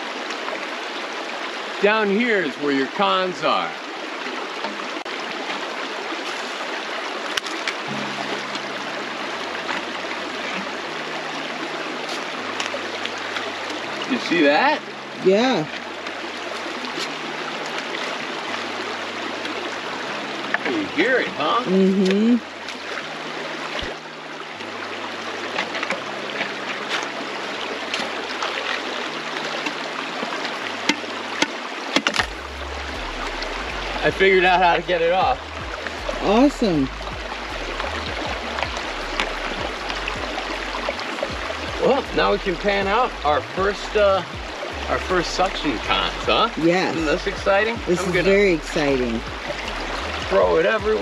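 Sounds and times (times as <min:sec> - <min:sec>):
river rushing over rocks: 0:00.0 - 0:51.0
faint low notes: 0:07.9 - 0:17.8, 0:32.2 - 0:51.0.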